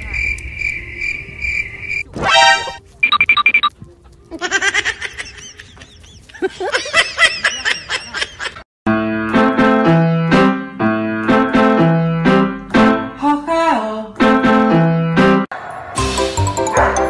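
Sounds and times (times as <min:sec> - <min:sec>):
bouncy keyboard music: 0:02.2 - 0:02.8, 0:08.9 - 0:13.2, 0:14.1 - 0:15.5, 0:16.1 - 0:17.0.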